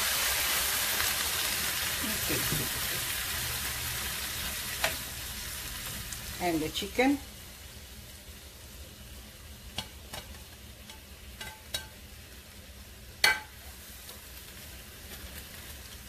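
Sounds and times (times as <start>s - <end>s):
faint sizzle: 0.0s - 16.0s
spoon clicking on plate and pan: 9.7s - 12.0s, 13.2s - 13.6s.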